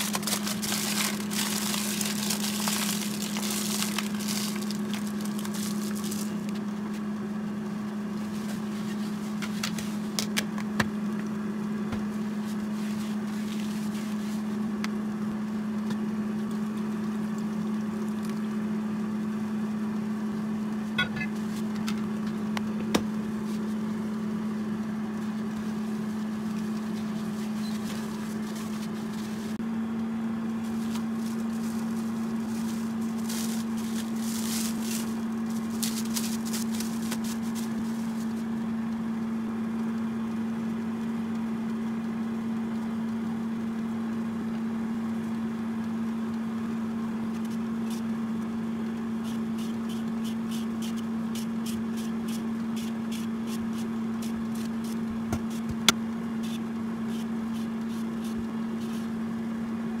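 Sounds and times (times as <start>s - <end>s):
steady low hum: 0.0s - 60.0s
peeler scraping radish: 49.2s - 55.8s, 56.4s - 59.2s.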